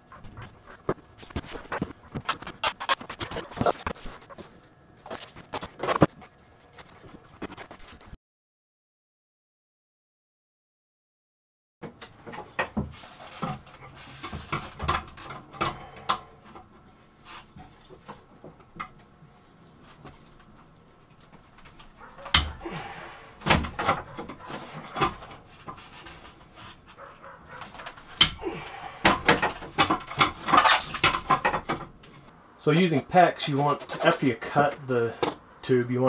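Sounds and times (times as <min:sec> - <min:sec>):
heavy breathing: 0:15.6 - 0:16.4, 0:22.5 - 0:23.5, 0:28.3 - 0:29.4.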